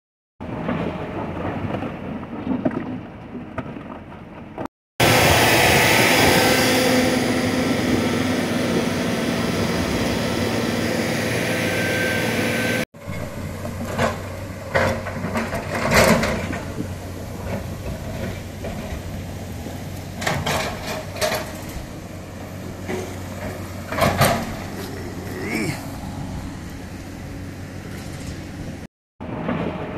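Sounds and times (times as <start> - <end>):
excavator bucket clanking on stone: 0.7 - 4.7, 13.0 - 19.3, 20.0 - 22.0, 22.7 - 25.2
diesel engine hum: 3.0 - 29.9
loud rushing noise: 5.0 - 13.3.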